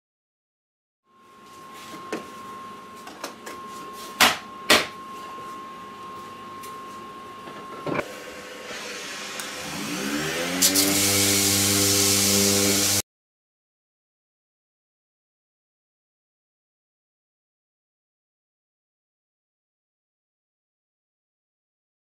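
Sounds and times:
orbital sander sanding wood: 8.6 - 13.0.

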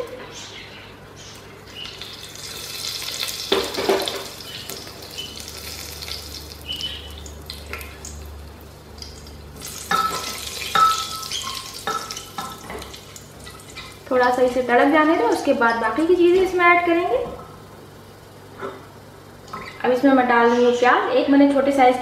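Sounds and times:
seeds sizzling in hot oil: 1.7 - 14.2.

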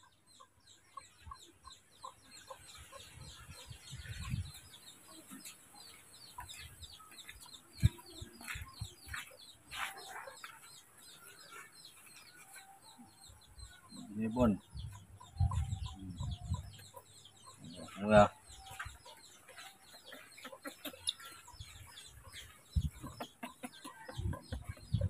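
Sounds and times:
birds chirping: 0.0 - 25.0
bird clucking: 2.0 - 25.0
footsteps: 5.4 - 12.8, 18.6 - 23.5.

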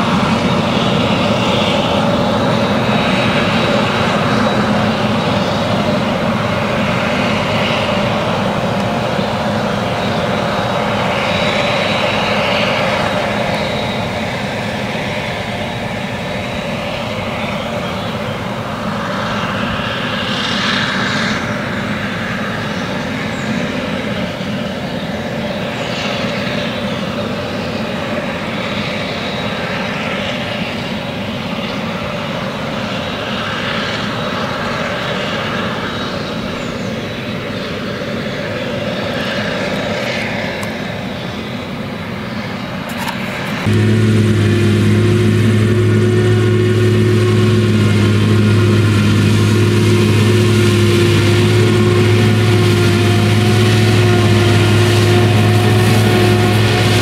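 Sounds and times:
forage harvester engine drone: 0.0 - 57.0
tractor engine: 42.9 - 57.0
high rushing noise: 43.5 - 57.0.

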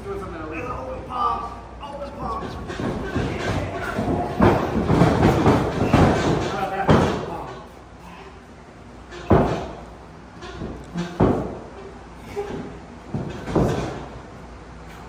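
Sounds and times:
wrestlers smacking ring: 2.2 - 7.8, 9.0 - 14.3.

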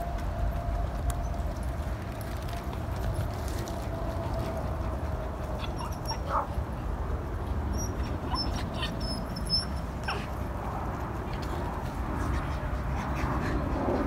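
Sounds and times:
steady low rumble: 0.0 - 14.0
dogs whimpering and yipping: 4.7 - 6.6, 7.7 - 10.4.

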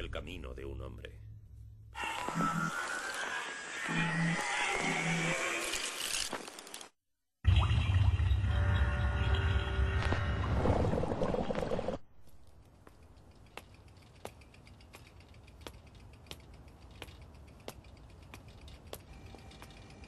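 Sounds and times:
bicycle ticking: 12.6 - 20.0.

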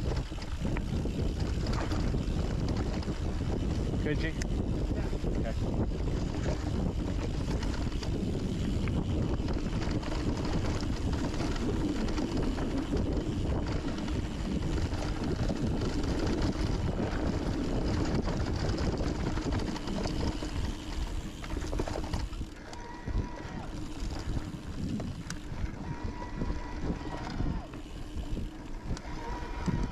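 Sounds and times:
bike tyres rolling on dirt trail: 0.0 - 29.9
wind on microphone: 0.0 - 29.9.

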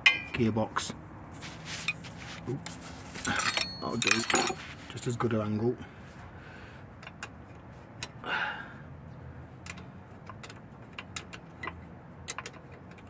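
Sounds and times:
spanner clicking on bolts: 9.6 - 13.0.

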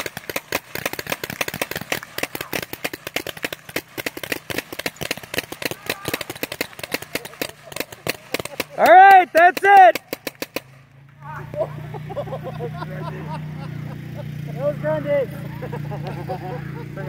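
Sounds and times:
air guns firing pops: 0.0 - 10.8.

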